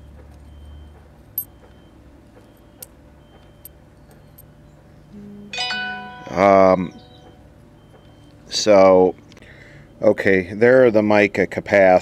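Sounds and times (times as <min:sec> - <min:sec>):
low hum: 0:05.0 - 0:07.5
plucked string musical phrase: 0:05.2 - 0:07.0.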